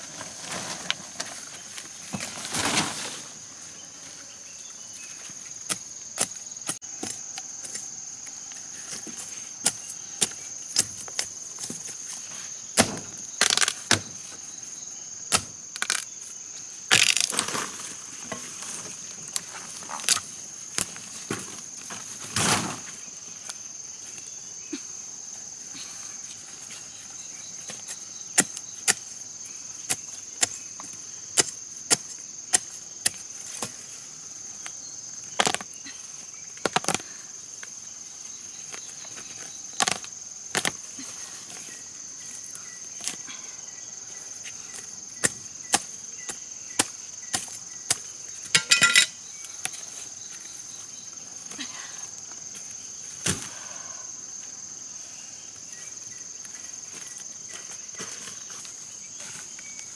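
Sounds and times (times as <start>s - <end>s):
high insect drone: 0.0s - 59.9s
machete chopping soil and roots: 12.8s - 14.2s, 15.3s - 16.1s, 16.9s - 17.7s, 27.6s - 29.1s, 29.8s - 33.8s, 44.7s - 49.0s.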